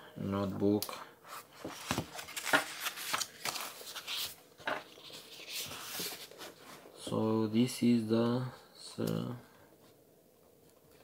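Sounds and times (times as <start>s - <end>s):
paper rustling: 1.3s - 6.9s.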